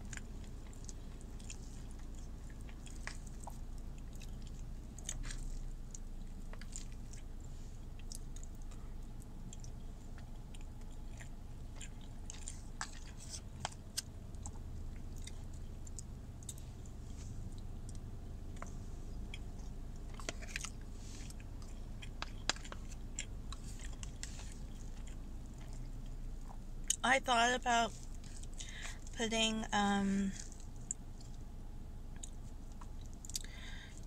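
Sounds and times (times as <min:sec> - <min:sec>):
chewing soft bread: 0:00.0 - 0:27.0, 0:27.8 - 0:29.2, 0:30.3 - 0:34.0
low steady hum: 0:00.0 - 0:34.0
wet mouth clicks and smacks: 0:32.1 - 0:33.9.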